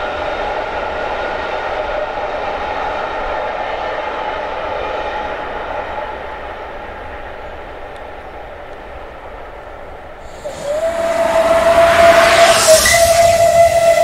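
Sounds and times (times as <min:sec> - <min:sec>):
steam hissing: 0:10.2 - 0:14.0
steam whistle blast: 0:10.2 - 0:14.0.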